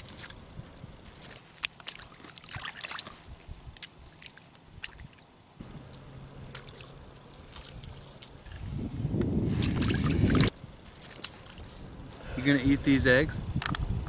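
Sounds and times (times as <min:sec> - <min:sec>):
hands splashing in ice water: 0:01.2 - 0:05.2, 0:09.5 - 0:10.5.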